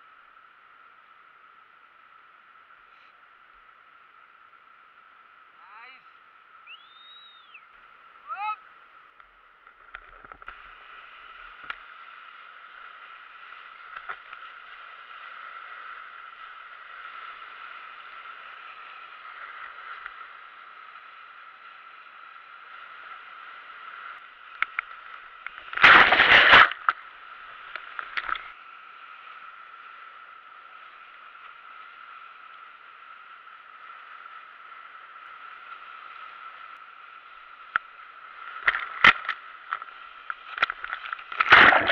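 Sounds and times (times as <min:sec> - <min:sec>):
water splashes: 0:25.5 - 0:27.0, 0:40.5 - 0:41.9.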